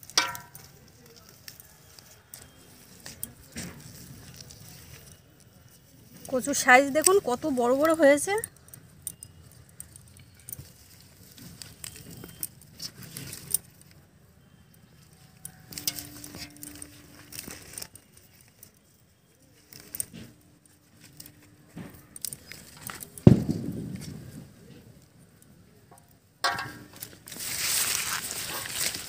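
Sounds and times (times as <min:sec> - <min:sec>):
bangles clinking: 0:00.0 - 0:23.2
soil and roots rustling: 0:00.0 - 0:23.3, 0:24.0 - 0:29.0.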